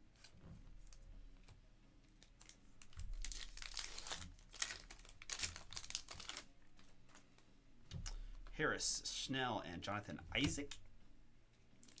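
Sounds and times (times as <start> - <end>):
wrapper tearing and crinkling: 2.2 - 6.5, 11.8 - 12.0.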